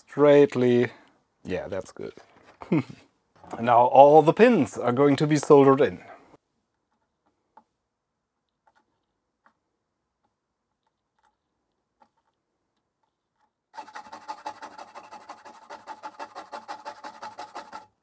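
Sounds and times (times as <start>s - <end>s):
stiff brush scrubbing circuit board: 13.7s - 18.0s.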